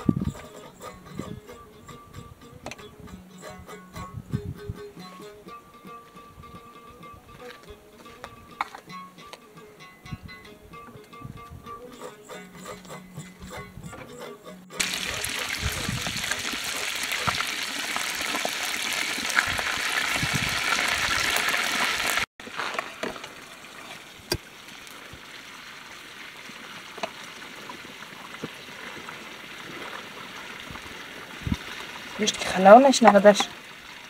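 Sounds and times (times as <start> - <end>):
butter sizzling in a metal pot: 11.8 - 34.0.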